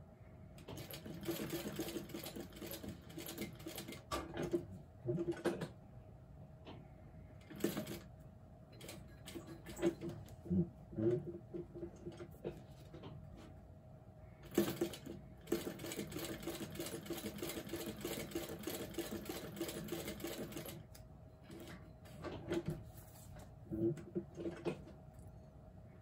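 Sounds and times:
sewing machine stitching: 0:00.6 - 0:05.7, 0:14.4 - 0:20.8.

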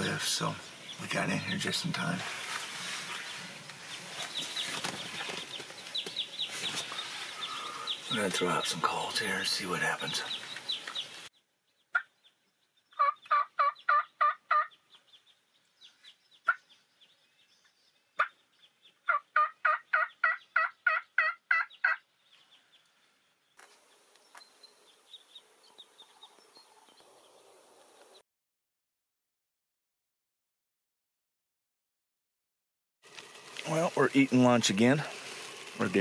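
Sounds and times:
turkey call yelps: 0:13.0 - 0:14.8, 0:19.1 - 0:22.0.

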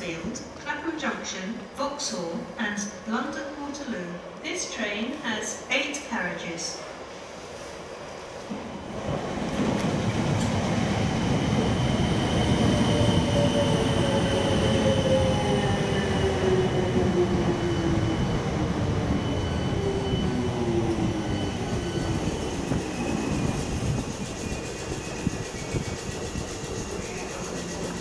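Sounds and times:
train wheels rumbling on rails: 0:08.4 - 0:28.0.

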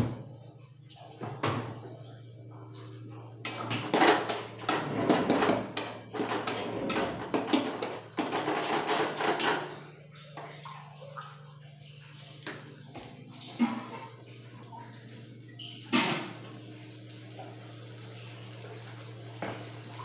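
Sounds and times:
metal spoon scraping steel pan: 0:04.7 - 0:09.2.

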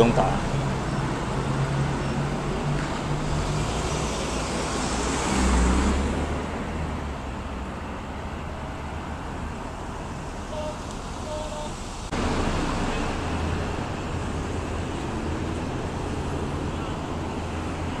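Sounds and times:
road traffic noise: 0:00.0 - 0:18.0
car passing close by: 0:01.2 - 0:07.5.

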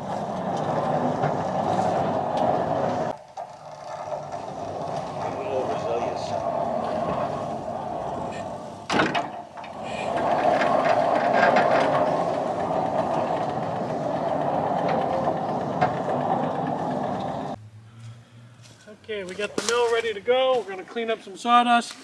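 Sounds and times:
sawmill running: 0:00.0 - 0:17.6.

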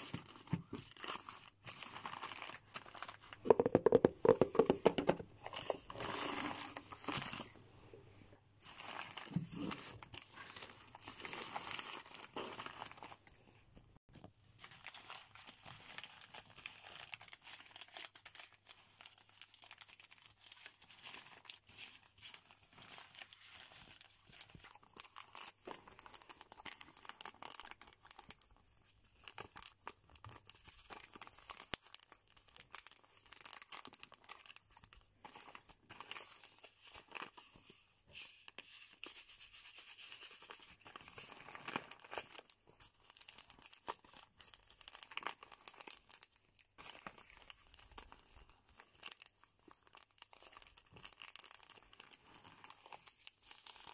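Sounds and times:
plastic sachets crinkling: 0:00.0 - 0:07.6, 0:08.6 - 0:13.5, 0:14.5 - 0:39.0, 0:40.1 - 0:53.9.

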